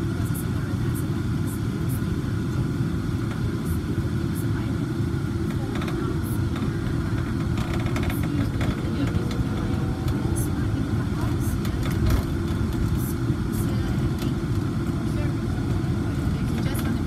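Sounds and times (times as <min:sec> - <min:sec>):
faint steady hum: 0:00.0 - 0:17.0
monorail car rumbling: 0:04.2 - 0:17.0.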